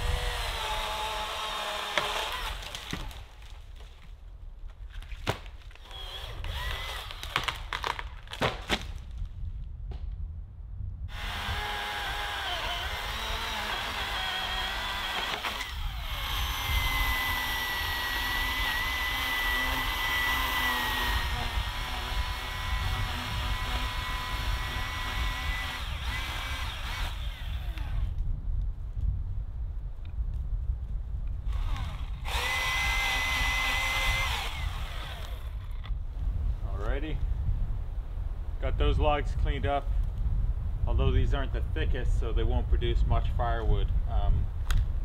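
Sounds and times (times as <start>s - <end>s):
electric chainsaw cutting logs: 0.0s - 3.6s, 5.7s - 8.8s, 11.1s - 28.2s, 31.5s - 36.0s
wood cracking and snapping: 0.3s - 9.3s.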